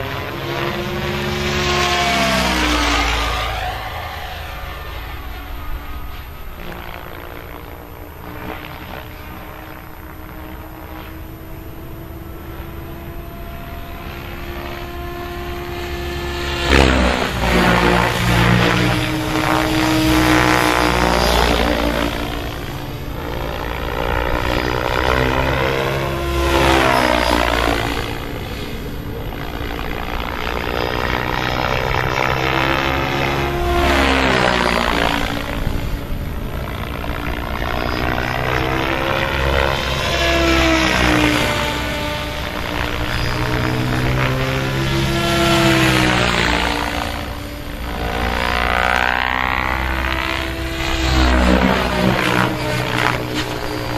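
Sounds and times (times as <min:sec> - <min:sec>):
model helicopter passing by: 0:00.0 - 0:53.9.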